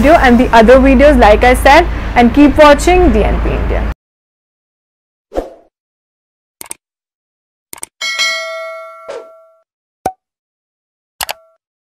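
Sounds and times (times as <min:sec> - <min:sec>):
short clicks: 0:07.7 - 0:07.9, 0:11.2 - 0:11.6
brief ding: 0:08.0 - 0:09.6
bright bell-like chime: 0:08.0 - 0:09.6.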